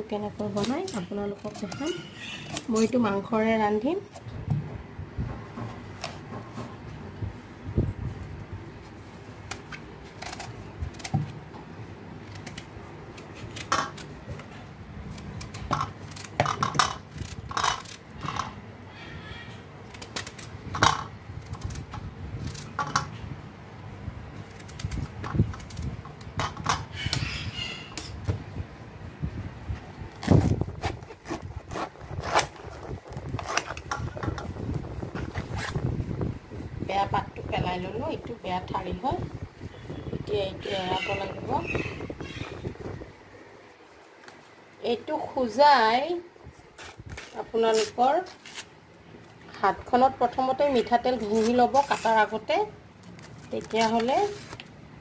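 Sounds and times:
knife scraping: 0:00.4 - 0:03.0, 0:46.7 - 0:48.7, 0:51.1 - 0:52.4.

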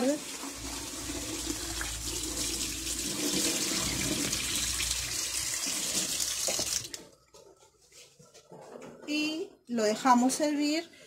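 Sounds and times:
tap running into a pot: 0:05.8 - 0:07.0.

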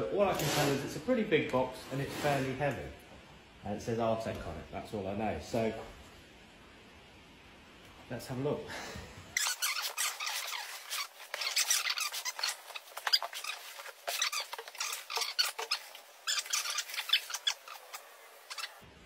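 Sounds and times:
tape and cardboard tearing: 0:09.4 - 0:18.7
foam and plastic bag rustling: 0:09.4 - 0:18.8.

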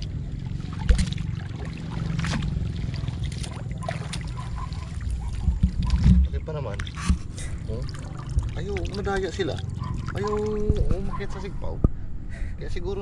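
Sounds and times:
water sloshing and splashing: 0:00.0 - 0:11.5
steady low rumble: 0:07.1 - 0:13.0.

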